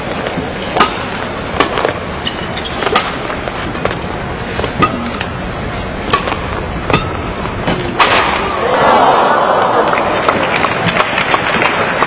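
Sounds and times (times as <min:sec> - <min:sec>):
rackets hitting shuttlecock: 0:00.2 - 0:08.6.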